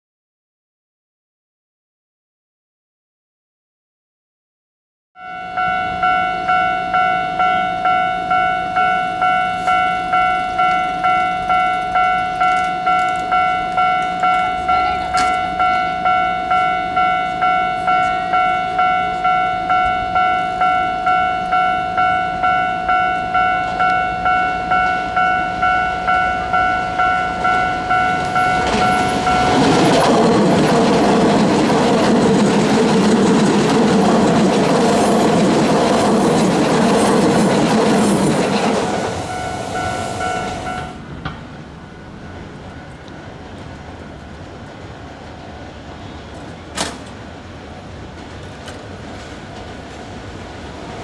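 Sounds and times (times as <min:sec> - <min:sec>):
level-crossing warning bell: 0:05.2 - 0:41.1
train wheels running on rails: 0:05.6 - 0:51.0.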